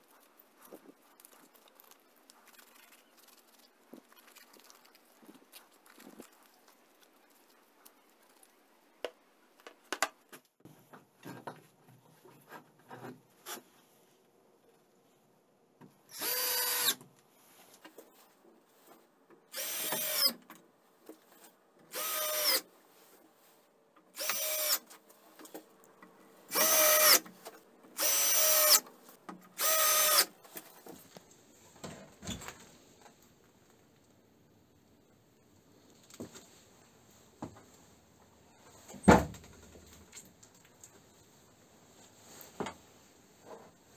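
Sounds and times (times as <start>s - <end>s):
cordless drill driving screws: 16.1s - 17.0s, 19.5s - 20.4s, 21.9s - 22.6s, 24.2s - 24.8s, 26.5s - 27.3s, 28.0s - 28.9s, 29.6s - 30.3s.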